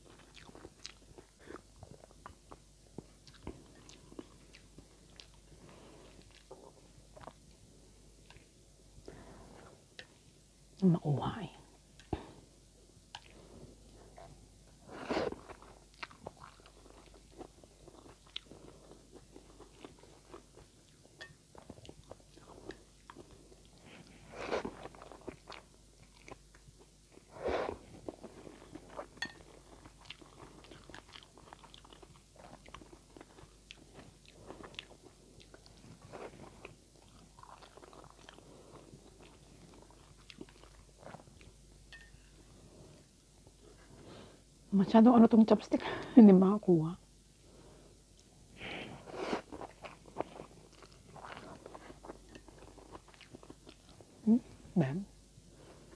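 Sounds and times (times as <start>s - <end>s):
chewing with wet mouth clicks: 0.0s - 5.5s, 15.4s - 23.8s, 28.1s - 42.2s, 49.5s - 54.1s.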